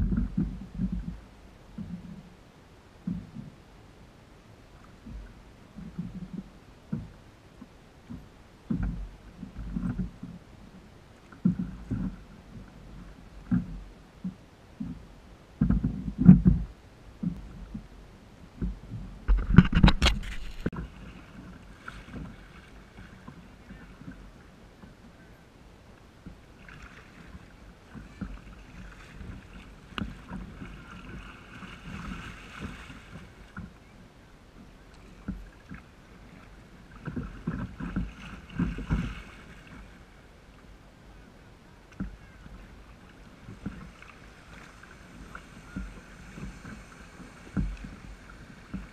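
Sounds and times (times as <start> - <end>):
water splashing around kayak: 0.0 - 48.9
wind on microphone: 15.6 - 24.4.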